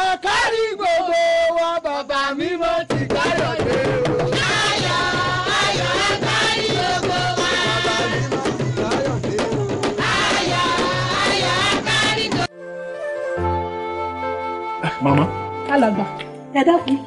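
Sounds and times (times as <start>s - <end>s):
person singing praise song: 0.0s - 12.5s
steady drum beat: 2.8s - 12.5s.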